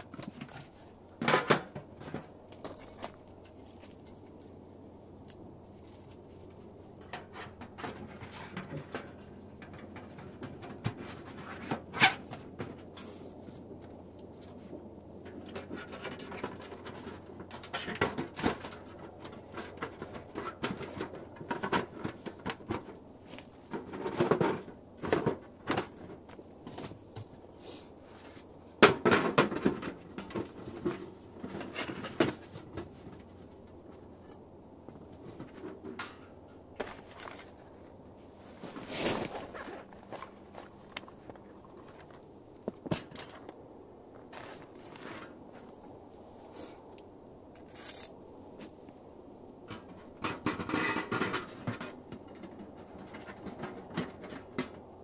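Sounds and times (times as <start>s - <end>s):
sheet metal clinking and scraping: 35.2s - 37.7s, 49.7s - 54.9s.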